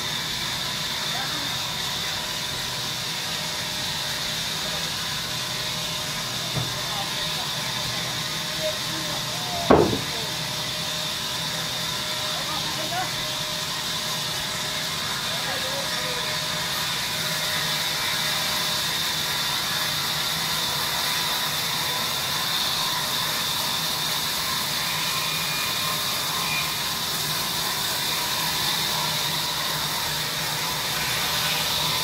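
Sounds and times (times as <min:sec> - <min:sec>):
band saw cutting log: 0:04.1 - 0:15.3.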